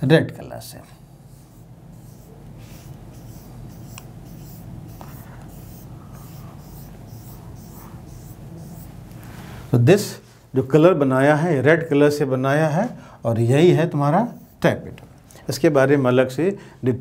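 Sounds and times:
low room hum: 0:00.0 - 0:17.0
marker scratching on whiteboard: 0:01.2 - 0:09.1, 0:14.2 - 0:14.7.

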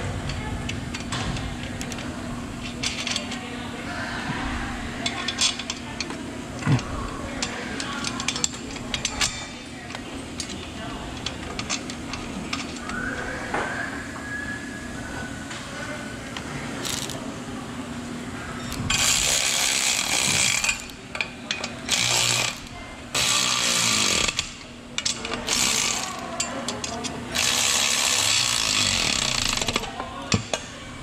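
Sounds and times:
cordless ratchet running: 0:16.8 - 0:17.2, 0:18.8 - 0:21.0, 0:21.9 - 0:26.3, 0:27.4 - 0:29.9.

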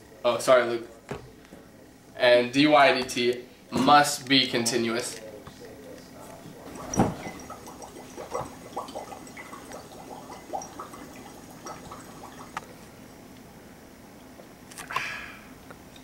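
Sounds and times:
water sloshing in a glass: 0:05.6 - 0:12.8.

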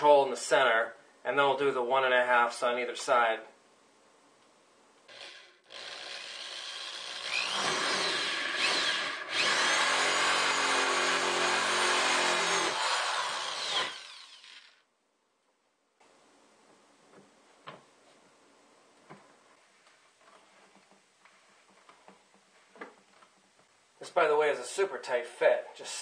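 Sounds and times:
electric drill cutting plastic: 0:05.1 - 0:14.8.

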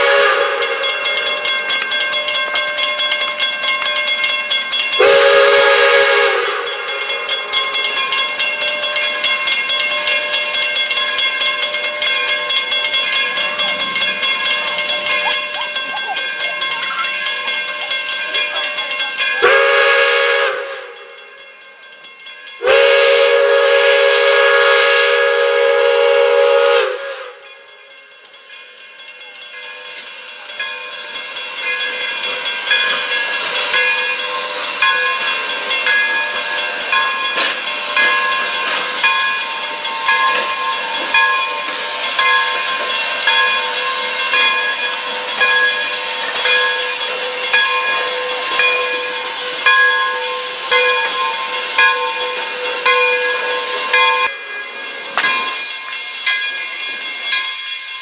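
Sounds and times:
steam locomotive whistle: 0:00.0 - 0:01.2, 0:04.9 - 0:07.2, 0:19.4 - 0:21.1, 0:22.6 - 0:27.7, 0:32.3 - 0:54.6
crossing bell ringing: 0:00.0 - 0:58.0
train cars rolling: 0:00.0 - 0:58.0
hissing steam: 0:29.5 - 0:57.9.

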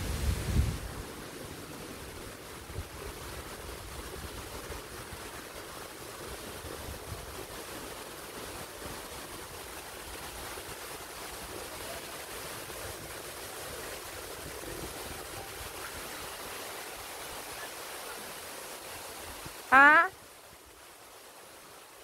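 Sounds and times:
wind rumble on microphone: 0:00.0 - 0:07.8
stream water flowing: 0:00.0 - 0:22.0.

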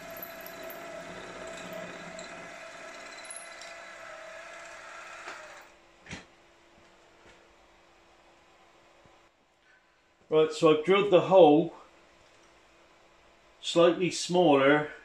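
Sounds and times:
milling machine spindle humming: 0:00.0 - 0:05.7.

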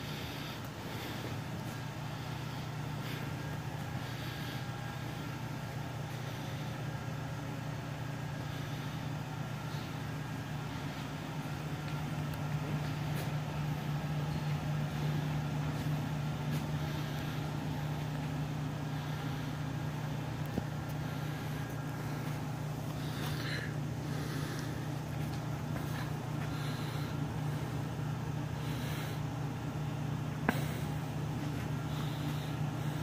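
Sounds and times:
low room hum: 0:00.0 - 0:33.0.

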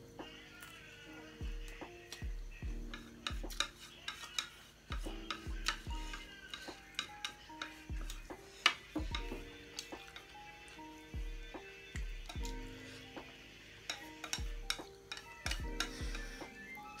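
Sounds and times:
soft background music: 0:00.0 - 0:17.0
chopsticks clicking on a plate: 0:02.9 - 0:10.3, 0:13.9 - 0:16.3.

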